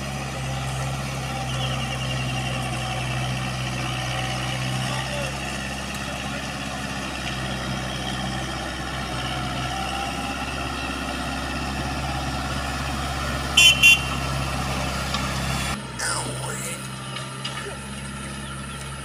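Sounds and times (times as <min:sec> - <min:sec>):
tractor engine running under load: 0:00.0 - 0:16.0, 0:16.9 - 0:19.0
horn toots: 0:13.6 - 0:14.2.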